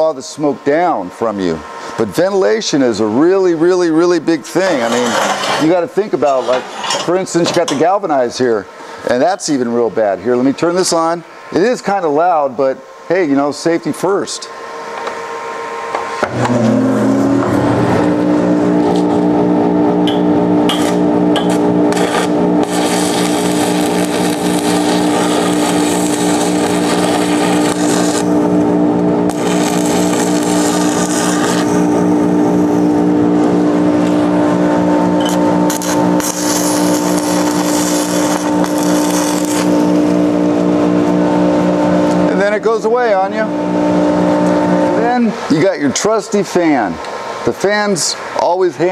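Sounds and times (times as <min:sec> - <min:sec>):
ventilation blower motor whine: 0:00.0 - 0:48.9
welding arc crackling: 0:16.3 - 0:45.3.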